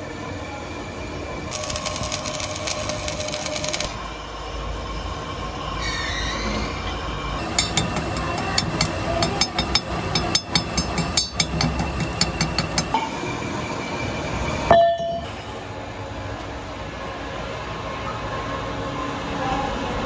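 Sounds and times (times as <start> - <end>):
workshop machinery hum: 0.0 - 5.9, 6.6 - 14.7.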